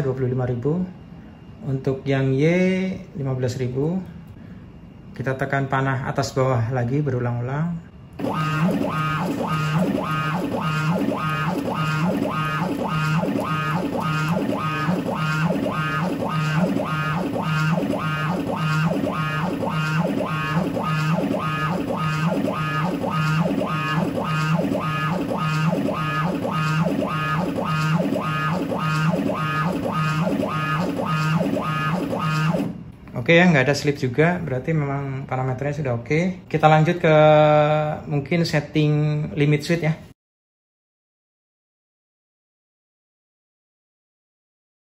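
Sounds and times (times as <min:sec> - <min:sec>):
stepper motors whining: 0:08.2 - 0:32.9.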